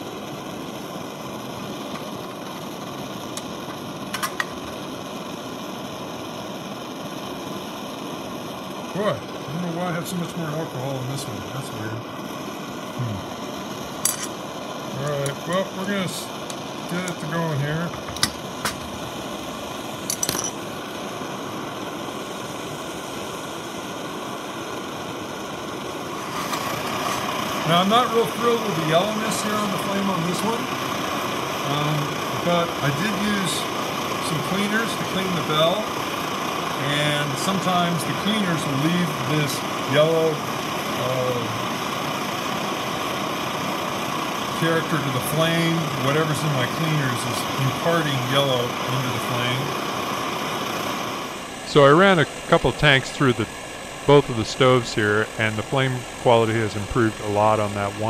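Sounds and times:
stove burners hissing: 0.0s - 58.0s.

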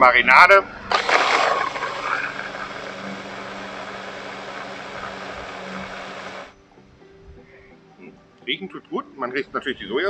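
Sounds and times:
electric mini chopper motor humming: 0.9s - 6.5s.

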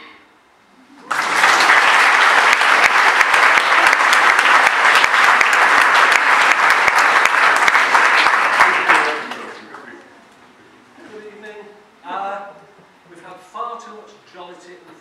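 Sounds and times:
crowd clapping: 1.0s - 10.0s.

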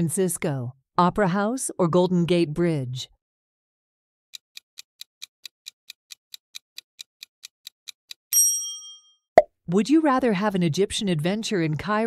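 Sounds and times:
timer ticking: 4.4s - 8.2s.

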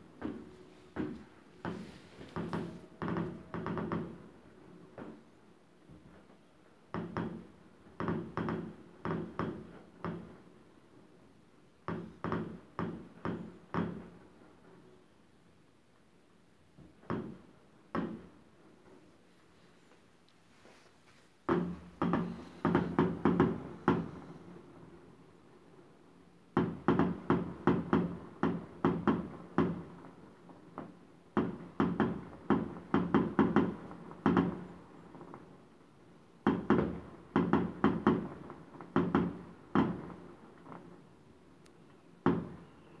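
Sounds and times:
muffled fireworks bangs: 21.4s - 25.0s, 26.5s - 35.7s, 36.4s - 41.4s, 42.1s - 43.0s.

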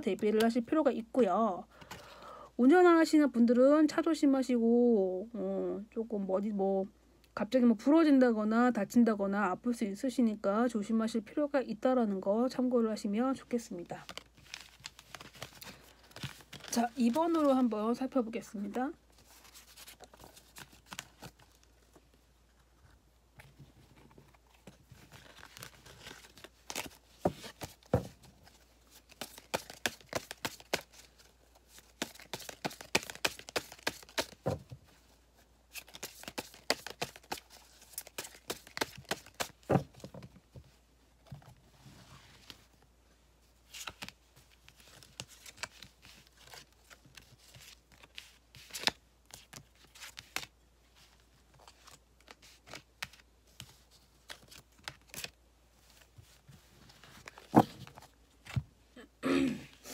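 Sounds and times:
cards shuffling with papery snaps: 14.0s - 17.7s, 19.2s - 21.9s, 24.0s - 34.6s, 35.7s - 40.2s, 43.7s - 58.6s.

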